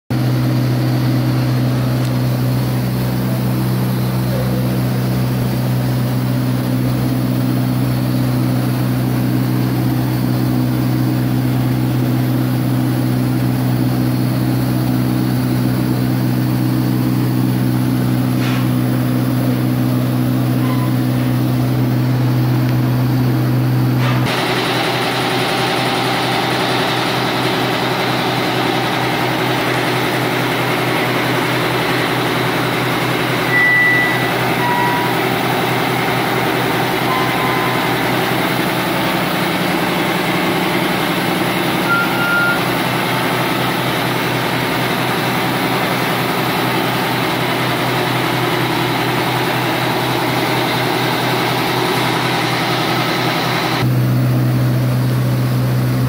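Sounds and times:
mechanical hum: 0:00.1 - 0:56.0
brief high tones: 0:33.4 - 0:35.4, 0:37.0 - 0:38.4, 0:41.8 - 0:42.8.

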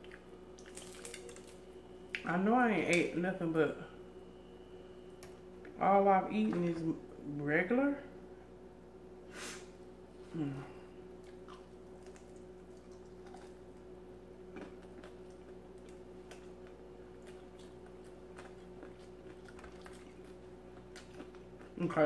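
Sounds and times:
chewing fried chicken: 0:00.0 - 0:01.6, 0:11.2 - 0:22.0
faint hum: 0:00.0 - 0:22.0.

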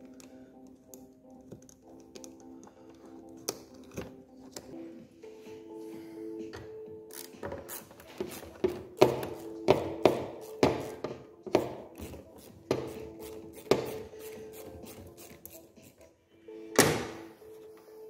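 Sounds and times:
screwdriver clicking and scraping metal: 0:07.1 - 0:08.6.

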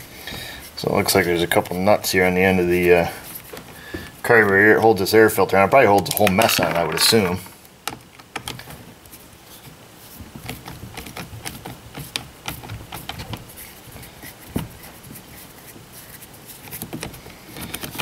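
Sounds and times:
nut driver clicking and scraping: 0:05.8 - 0:08.6.

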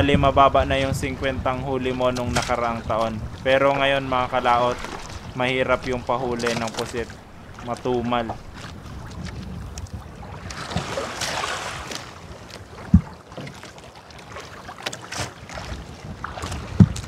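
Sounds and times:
water noise: 0:00.0 - 0:17.0
wind: 0:00.0 - 0:17.0
dull knocks: 0:12.8 - 0:13.6.

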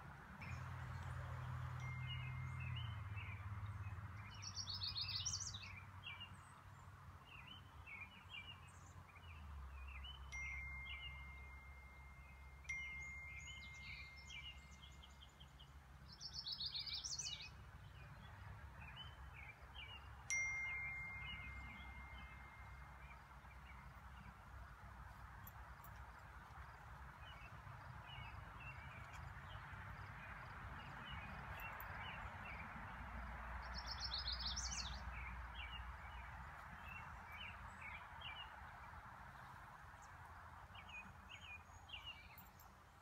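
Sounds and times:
songbirds singing: 0:00.4 - 0:43.0
chime ringing: 0:10.3 - 0:14.4, 0:20.3 - 0:23.0.

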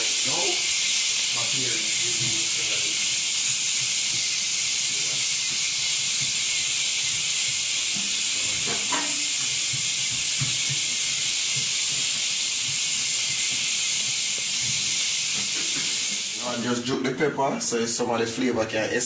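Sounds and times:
loud steady hiss: 0:00.0 - 0:17.0
dishes knocking and clinking: 0:08.6 - 0:10.8.

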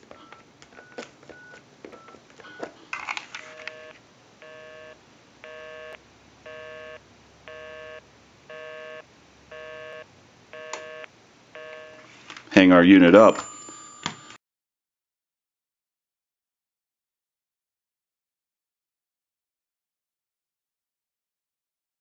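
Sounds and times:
keypad dialing beeps: 0:00.1 - 0:02.7
two-tone busy signal buzz: 0:03.5 - 0:12.1.

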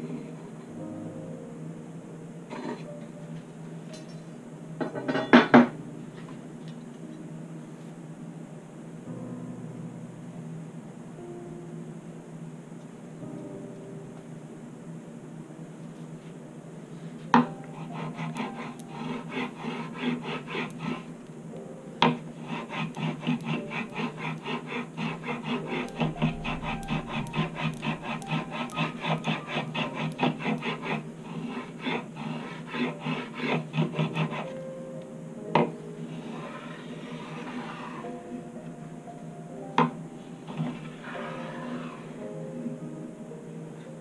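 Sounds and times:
tool scraping wood: 0:17.8 - 0:21.1, 0:22.0 - 0:34.6, 0:36.2 - 0:38.1, 0:40.5 - 0:42.2.

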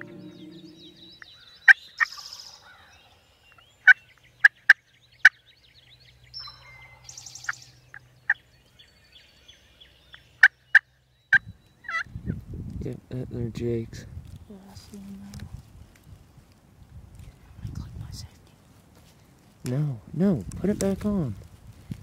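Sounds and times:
songbirds twittering: 0:00.0 - 0:12.4.

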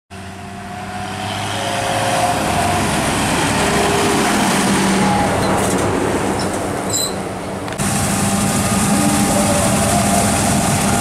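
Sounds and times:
tractor engine passing: 0:07.8 - 0:11.0.

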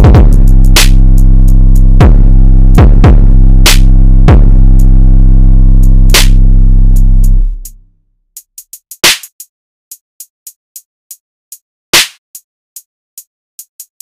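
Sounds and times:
heavy drum hits: 0:00.0 - 0:01.0, 0:02.0 - 0:04.6
hi-hat ticks: 0:00.0 - 0:02.0, 0:06.1 - 0:06.4, 0:08.4 - 0:14.0.

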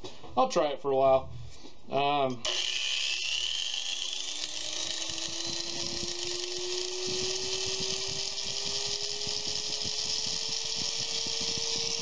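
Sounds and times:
angle grinder motor whine: 0:02.4 - 0:12.0
irregular low thuds: 0:07.0 - 0:12.0.

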